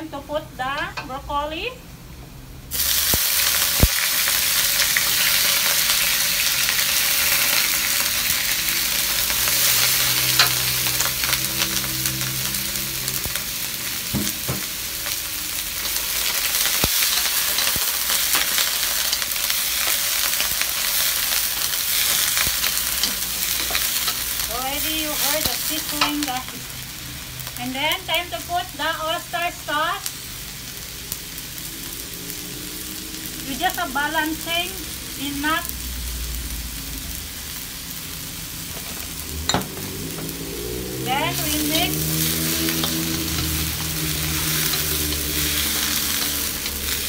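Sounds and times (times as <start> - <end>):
vegetables sizzling in hot oil: 2.6 - 47.0.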